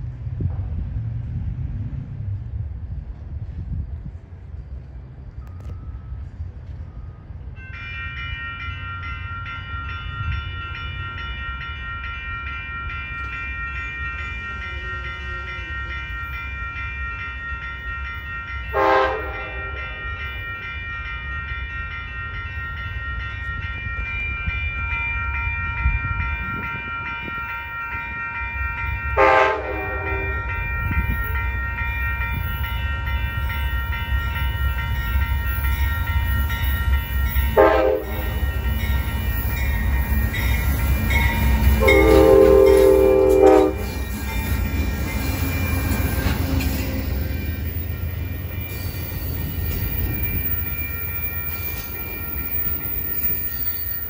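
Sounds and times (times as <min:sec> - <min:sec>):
warning bell ringing: 0:07.6 - 0:54.0
train horn blasts: 0:18.7 - 0:20.0, 0:29.1 - 0:31.0, 0:37.5 - 0:38.5, 0:41.2 - 0:44.0
locomotive engine rumble: 0:25.6 - 0:54.0.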